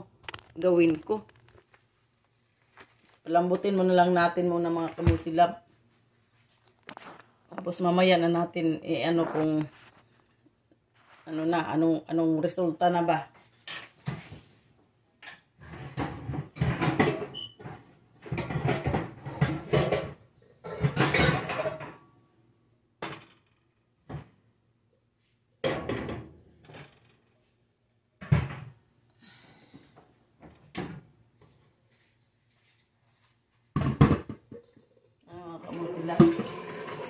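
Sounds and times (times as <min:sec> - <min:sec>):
pots and pans clattering: 0:15.6 - 0:22.0.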